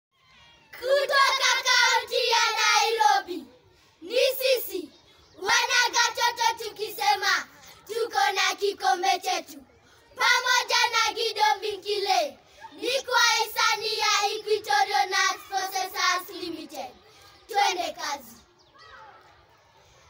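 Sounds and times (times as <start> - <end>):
children singing in unison: 0.8 - 9.6, 10.2 - 18.4.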